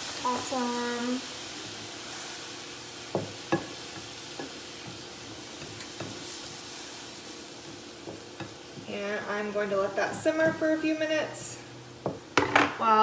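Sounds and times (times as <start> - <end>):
meat sizzling in a frying pan: 0.0 - 13.0
spatula knocking and scraping pan: 3.1 - 6.6, 7.6 - 11.0, 12.0 - 12.8.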